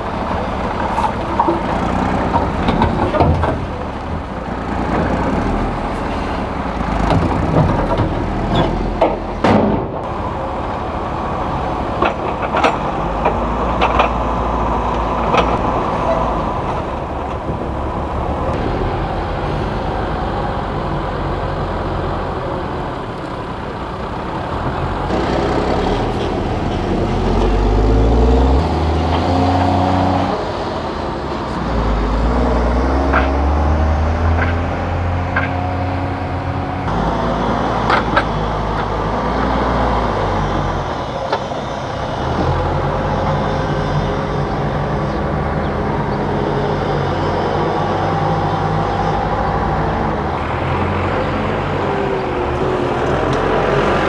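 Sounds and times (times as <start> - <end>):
heavy diesel engines revving: 0.0 - 54.0.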